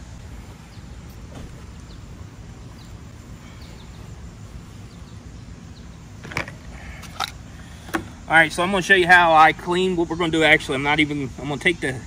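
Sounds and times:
faint bird chirps: 0:00.5 - 0:07.8.

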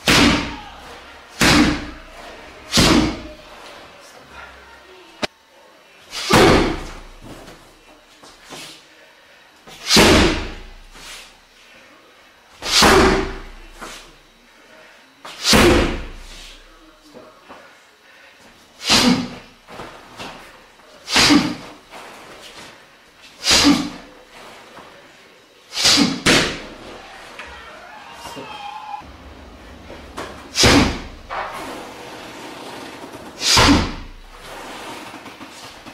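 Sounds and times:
strikes slamming a padded tyre: 0:00.0 - 0:00.8, 0:01.4 - 0:02.0, 0:02.7 - 0:03.3, 0:06.2 - 0:07.4, 0:09.8 - 0:10.8, 0:12.6 - 0:13.7, 0:15.4 - 0:16.5, 0:21.1 - 0:21.8, 0:30.2 - 0:35.9.

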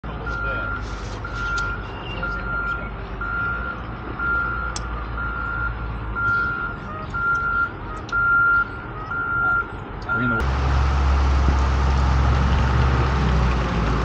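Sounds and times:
vehicle backup alarm beeping: 0:00.2 - 0:10.5.

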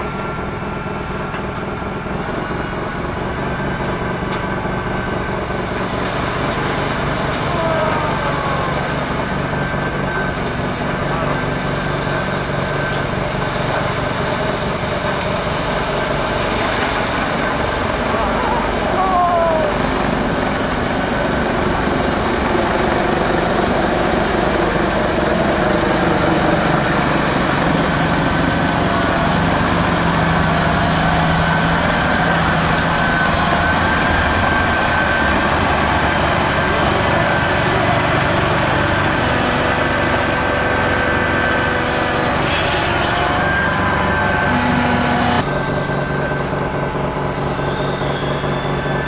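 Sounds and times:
snow blower running: 0:00.0 - 0:49.0
thin steady whine: 0:00.0 - 0:49.0.

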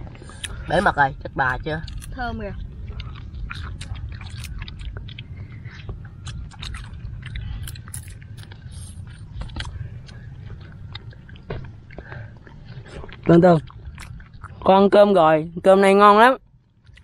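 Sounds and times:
chewing: 0:00.0 - 0:15.1, 0:16.4 - 0:17.0
steady low rumble: 0:00.0 - 0:17.0
crab shells cracking: 0:01.6 - 0:12.1, 0:13.2 - 0:14.7.

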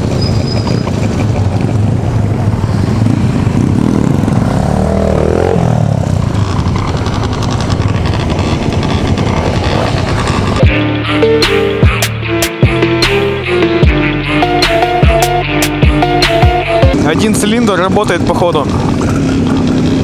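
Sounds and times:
scooter engine running: 0:00.0 - 0:10.8, 0:16.9 - 0:20.0
motorcycles nearby: 0:00.0 - 0:20.0
engine revving: 0:01.9 - 0:20.0.

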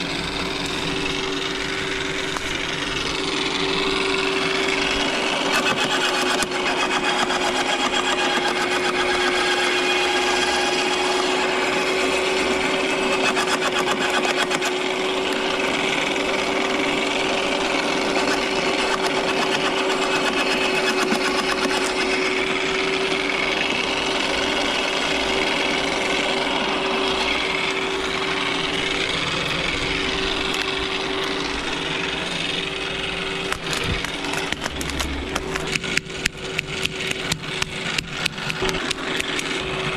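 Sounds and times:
branches crackling in shredder: 0:00.0 - 0:39.9
garden shredder motor hum: 0:00.0 - 0:39.9
loppers snapping branches: 0:33.3 - 0:39.7.

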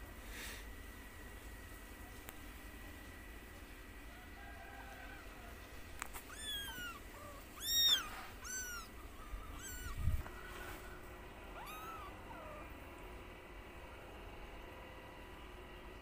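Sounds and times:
kitten mewing: 0:06.0 - 0:10.4, 0:11.5 - 0:12.8.

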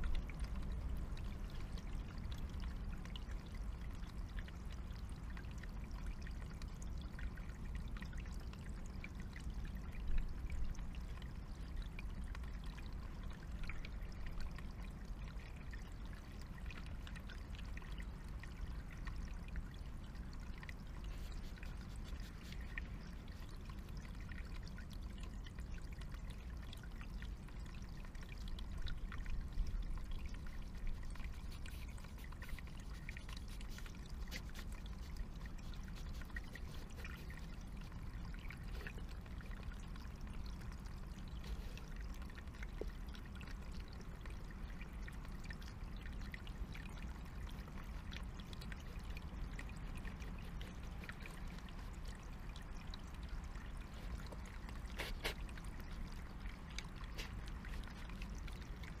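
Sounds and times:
stream trickling over stones: 0:00.0 - 0:59.0.

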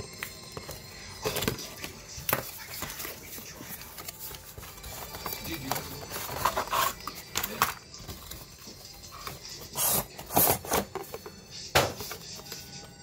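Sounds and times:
cardboard packaging rustling: 0:01.2 - 0:11.3.

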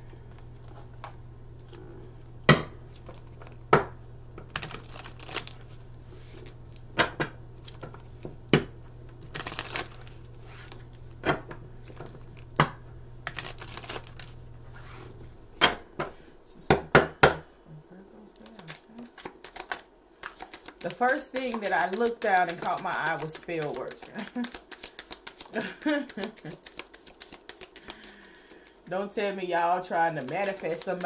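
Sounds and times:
low steady hum: 0:00.0 - 0:31.0
cards being shuffled: 0:04.4 - 0:06.9, 0:07.6 - 0:08.4, 0:09.1 - 0:12.6, 0:13.2 - 0:15.2, 0:18.4 - 0:28.8, 0:30.0 - 0:31.0.

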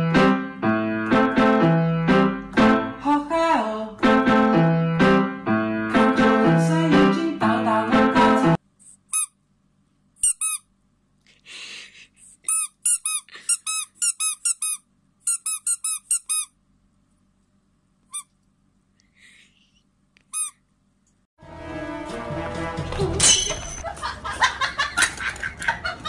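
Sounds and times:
squeaky rubber toy squeaks: 0:09.0 - 0:09.4, 0:10.2 - 0:10.7, 0:12.5 - 0:16.6, 0:18.0 - 0:18.4, 0:20.2 - 0:20.6.

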